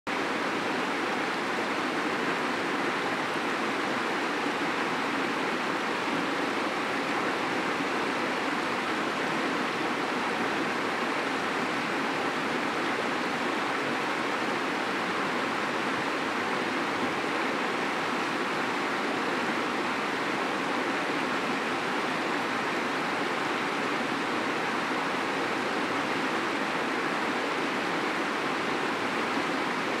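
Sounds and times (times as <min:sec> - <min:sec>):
river rushing over stones: 0:00.1 - 0:30.0.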